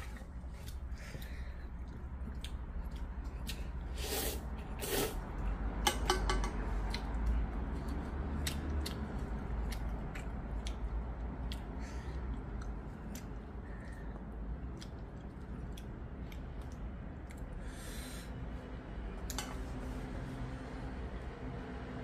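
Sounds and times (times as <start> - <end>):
wet chewing: 0.0 - 5.6, 6.8 - 17.6
steady low hum: 0.0 - 22.0
noodles being slurped: 3.9 - 5.5.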